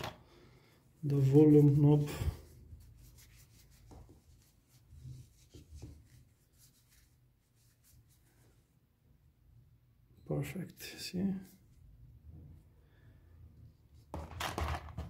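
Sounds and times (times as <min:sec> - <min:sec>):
cloth rubbing on metal knob: 0:02.7 - 0:08.4.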